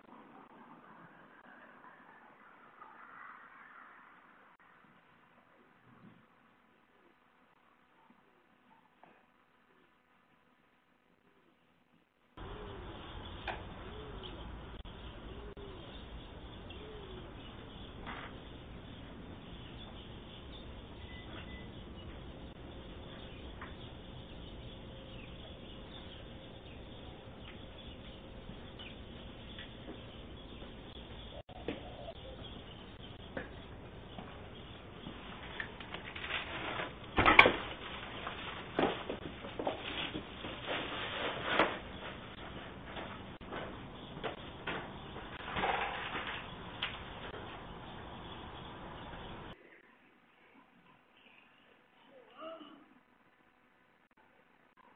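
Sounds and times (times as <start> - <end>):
dove cooing: 12.4 - 18.2, 31.3 - 32.6.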